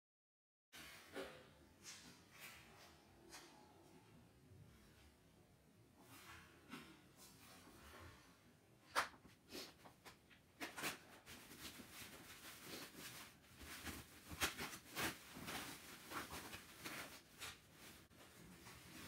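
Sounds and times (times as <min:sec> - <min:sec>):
wrapping and bag rustling: 0:10.8 - 0:19.0.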